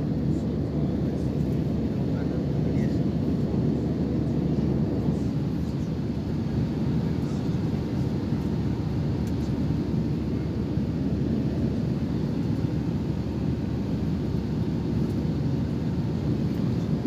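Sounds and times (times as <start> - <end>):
airliner cabin engine rumble: 0.0 - 17.0.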